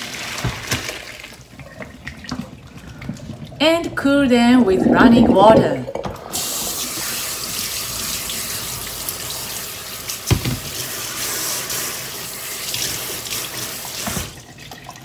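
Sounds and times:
tap water running into a sink: 4.7 - 15.0.

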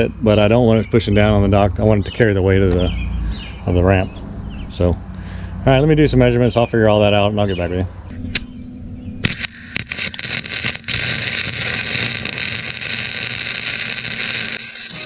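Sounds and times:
arc welding crackling: 9.2 - 15.0.

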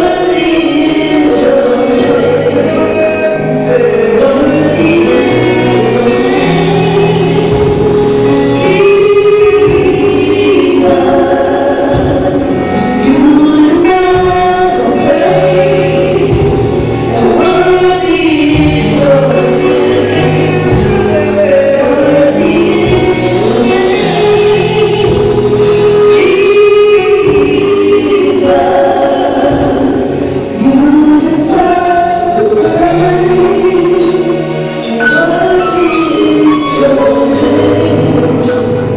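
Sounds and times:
gospel choir singing: 0.0 - 38.9
instrumental accompaniment: 0.0 - 38.9.

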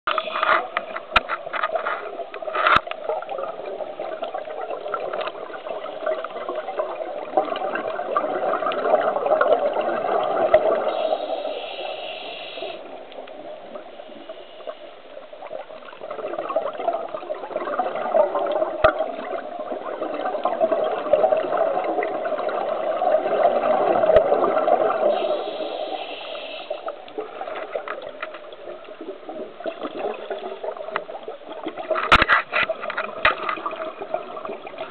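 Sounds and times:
exhaled bubbles rumbling: 0.1 - 11.6, 12.8 - 26.0, 26.8 - 34.9
regulator inhalation hiss: 10.9 - 13.0, 25.0 - 26.9.

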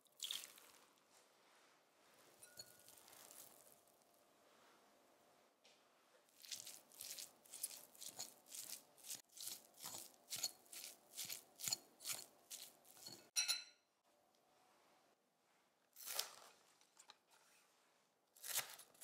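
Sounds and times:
fork clinking against glass: 2.4 - 3.0, 9.8 - 13.8
fork mashing tofu in bowl: 6.3 - 13.7.

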